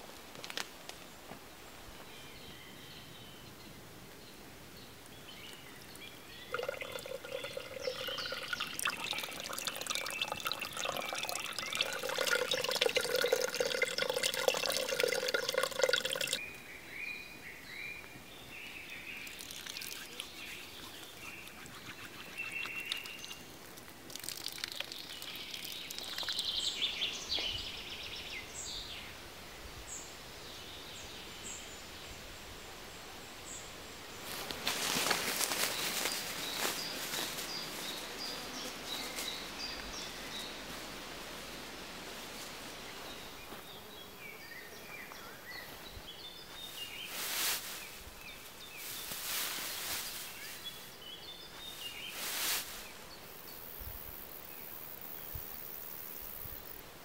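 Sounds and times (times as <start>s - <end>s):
small birds chirping: 2.0s - 29.2s, 29.9s - 41.6s, 42.3s - 56.8s
water pouring from spout: 6.5s - 16.4s, 19.3s - 26.6s.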